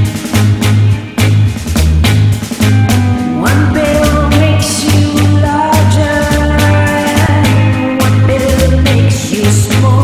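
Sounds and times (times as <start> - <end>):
drum beat: 0.0 - 7.6
held melody line: 0.0 - 10.0
pulsing bass line: 0.0 - 10.0.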